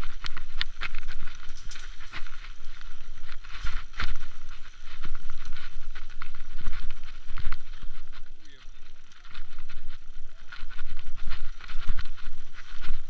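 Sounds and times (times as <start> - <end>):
bike clicking and rattling: 0.0 - 13.0
low wind rumble: 0.0 - 13.0.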